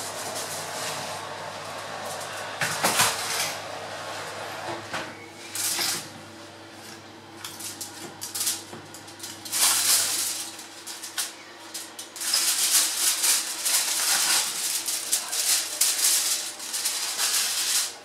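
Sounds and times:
aluminium foil crinkling: 6.8s - 18.0s.

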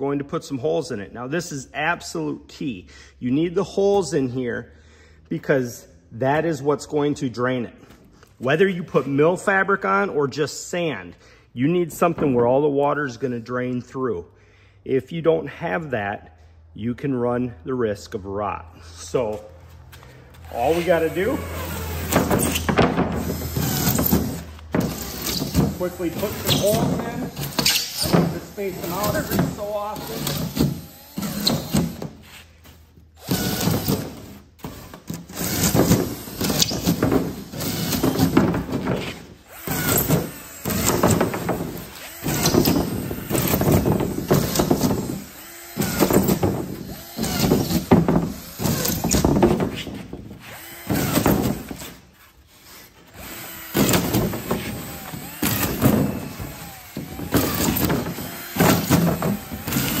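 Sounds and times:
cordless drill whirring: 20.0s - 32.2s, 33.2s - 38.4s, 39.3s - 49.4s, 50.4s - 60.0s.

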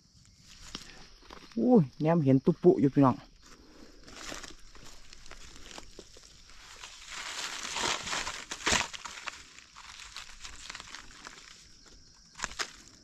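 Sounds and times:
crunch of digging: 0.2s - 1.8s, 3.4s - 13.0s
dry leaves rustling and crackling: 3.7s - 13.0s.

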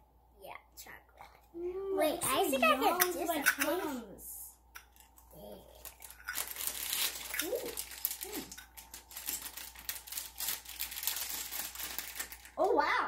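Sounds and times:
child vocal sounds: 1.5s - 4.2s
plastic packaging crinkling: 5.0s - 12.7s.

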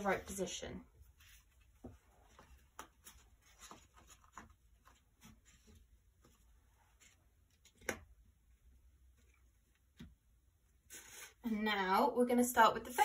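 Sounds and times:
paper card rustling and tapping: 1.3s - 8.2s.

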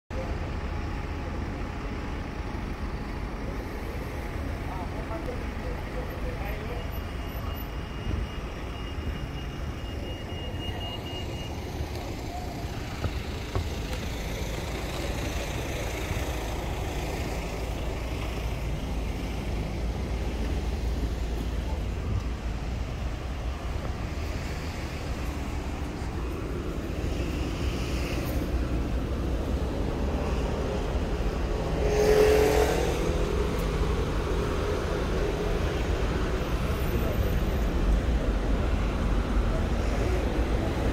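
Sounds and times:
traffic rumble: 0.1s - 40.9s
vehicle passing: 26.9s - 36.7s.

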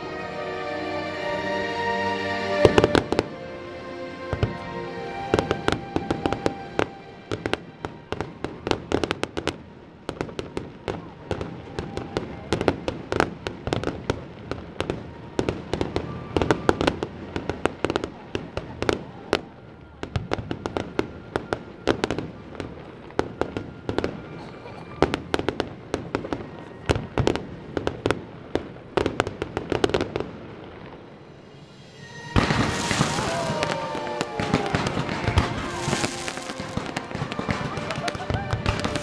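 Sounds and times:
music playing: 0.0s - 9.9s, 31.3s - 39.0s
fireworks bangs and crackles: 2.5s - 3.5s, 4.3s - 39.0s.

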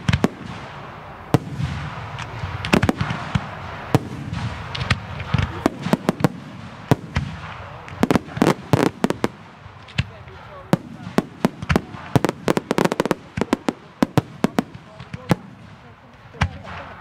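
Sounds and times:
fireworks bangs: 0.0s - 17.0s
fireworks crackling hiss: 0.0s - 17.0s.

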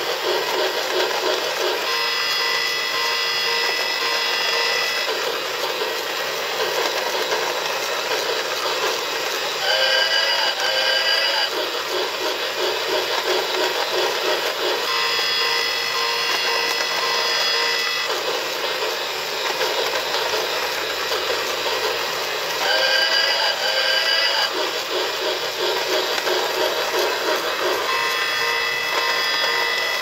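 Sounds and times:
train chuffing sound effect: 0.0s - 30.0s
steam whistle sound effect: 1.8s - 5.2s, 8.7s - 11.5s, 14.2s - 18.3s, 22.5s - 24.7s, 26.0s - 30.0s.

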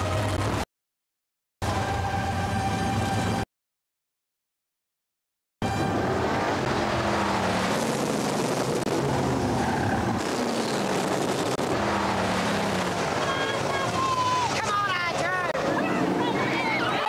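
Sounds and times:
race car engines revving: 5.6s - 17.0s.

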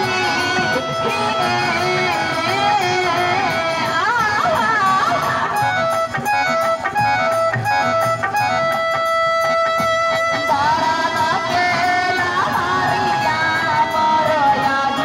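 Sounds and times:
live band dance music: 0.0s - 15.0s.

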